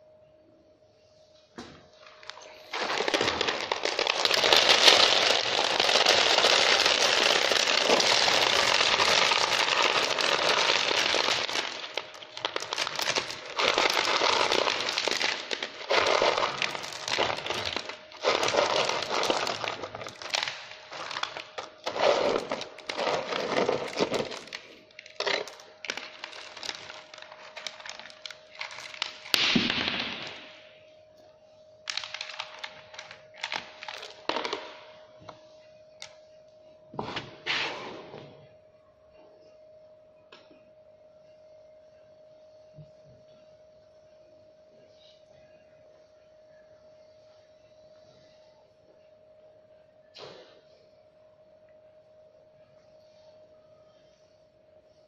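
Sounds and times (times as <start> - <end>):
small stones pouring and rattling: 2.8 - 20.4.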